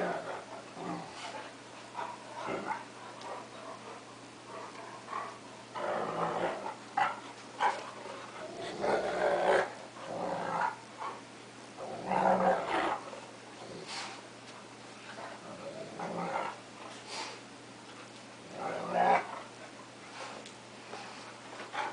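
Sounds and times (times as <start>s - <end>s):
dogs growling while play-fighting: 0.0s - 11.2s, 11.8s - 14.2s, 15.0s - 16.9s, 17.9s - 19.6s.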